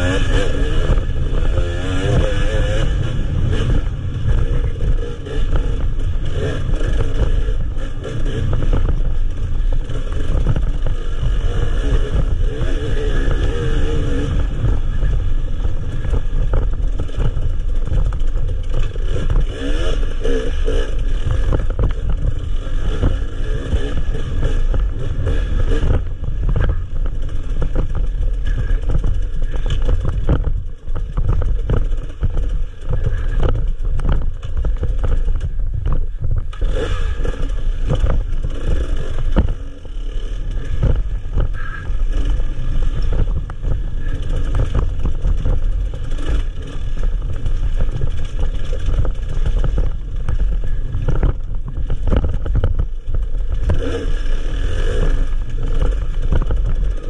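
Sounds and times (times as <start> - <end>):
motorcycle engine revving: 0.0 - 57.0
rattling knocks from motorcycle: 47.8 - 53.9.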